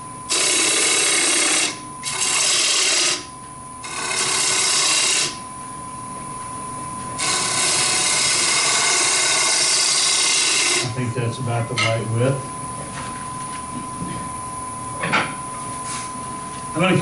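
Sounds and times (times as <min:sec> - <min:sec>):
faint steady whine: 0:00.0 - 0:17.0
gouge scraping spinning wood: 0:00.3 - 0:05.4, 0:07.2 - 0:11.0.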